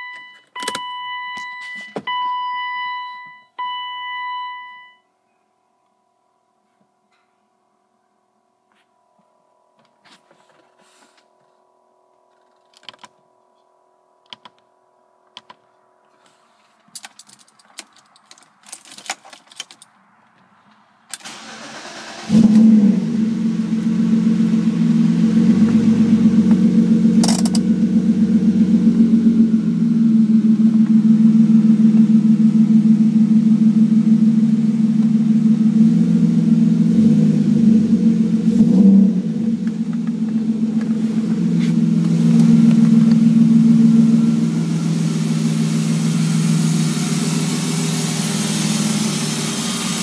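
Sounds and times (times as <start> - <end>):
keys clicking: 16.9 - 20.0
car engine idling: 21.2 - 50.0.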